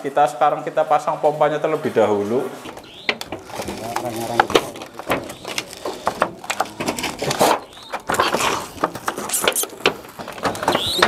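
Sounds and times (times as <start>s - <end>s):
metal roof sheets popping and creaking: 2.6s - 11.0s.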